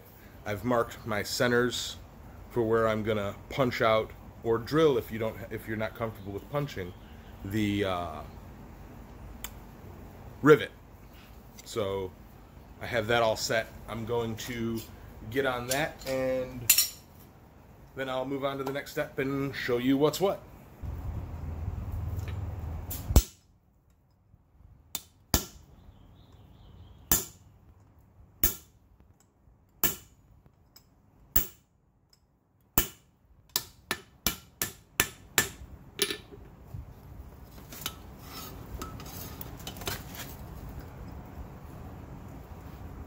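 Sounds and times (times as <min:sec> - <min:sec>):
hammer striking hand punch: 0:29.8 - 0:30.1, 0:32.8 - 0:35.6.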